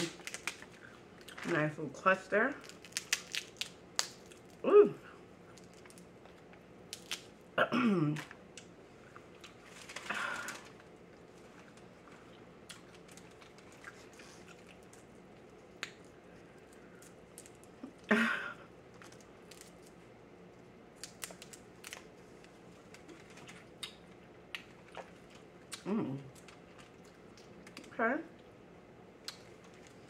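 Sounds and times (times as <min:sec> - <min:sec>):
crab shells cracking: 0:00.0 - 0:01.4, 0:02.6 - 0:04.6, 0:05.5 - 0:07.4, 0:12.7 - 0:17.8, 0:18.9 - 0:20.0, 0:21.0 - 0:22.2.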